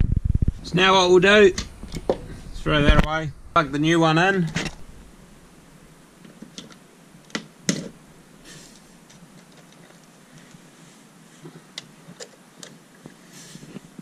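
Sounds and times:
cables rustling: 0:07.8 - 0:14.0.

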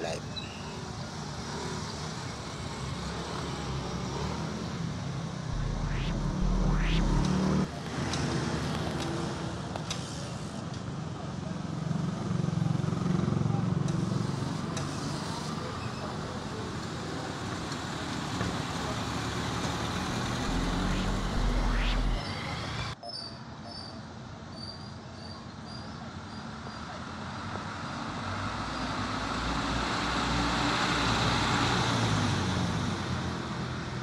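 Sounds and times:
street traffic: 0:00.0 - 0:34.0
motorcycle engine: 0:05.6 - 0:07.7.

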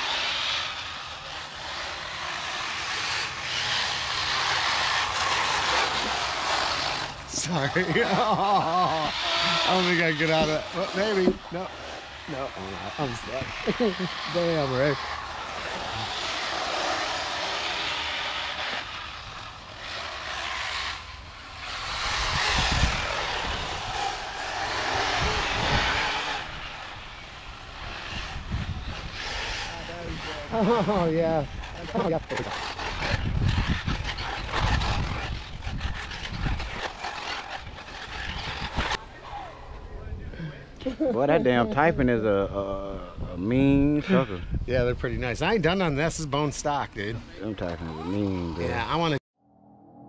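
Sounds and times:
tyres on loose dirt: 0:00.0 - 0:39.7
electric motors whining: 0:00.0 - 0:39.9.

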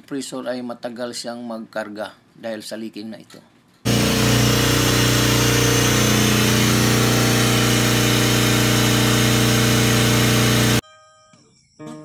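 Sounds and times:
air compressor humming: 0:03.9 - 0:10.8.

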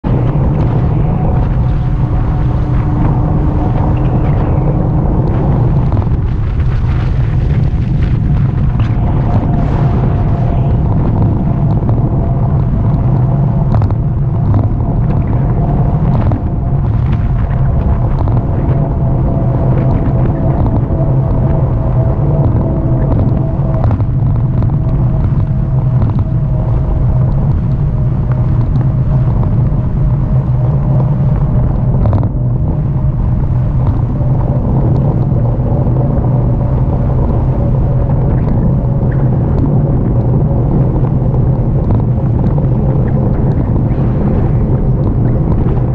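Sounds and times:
faint whine sinking in pitch: 0:00.0 - 0:45.9
wind buffeting microphone: 0:00.0 - 0:45.9
tyre rumble on rough asphalt: 0:05.3 - 0:13.0.

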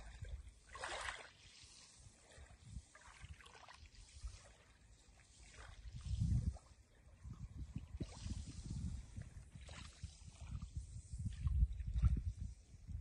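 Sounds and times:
small waves lapping on shore: 0:00.0 - 0:12.9
low fluttering rumble: 0:05.7 - 0:13.0.

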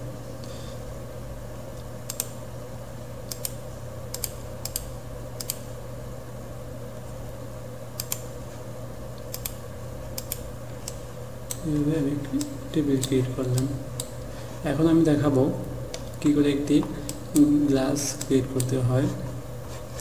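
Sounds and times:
computer mouse clicking: 0:02.0 - 0:02.4, 0:03.3 - 0:05.6, 0:08.0 - 0:08.3, 0:09.2 - 0:09.6, 0:10.2 - 0:11.8.

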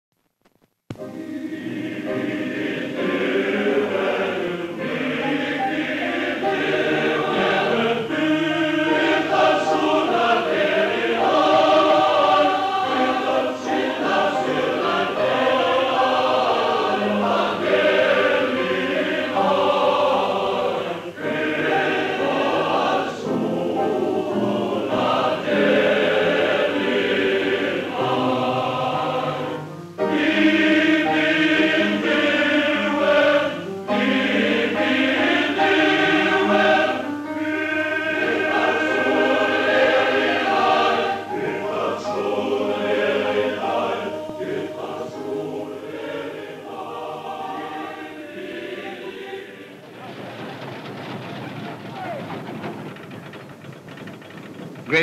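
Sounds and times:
male choir singing in harmony: 0:01.0 - 0:53.0.

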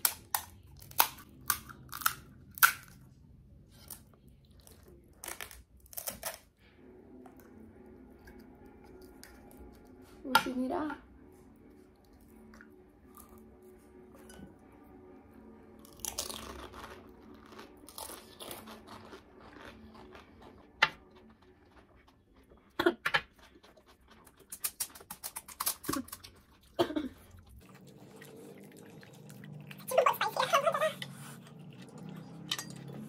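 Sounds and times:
crunching and chewing: 0:00.0 - 0:06.6, 0:15.7 - 0:30.4.

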